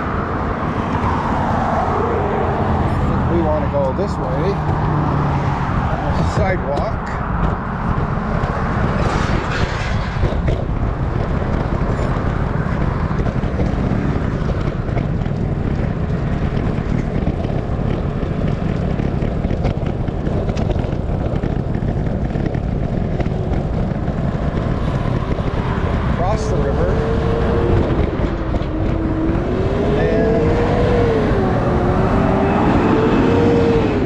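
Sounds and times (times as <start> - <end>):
road traffic rumble: 0.0 - 34.0
wind on microphone: 0.0 - 34.0.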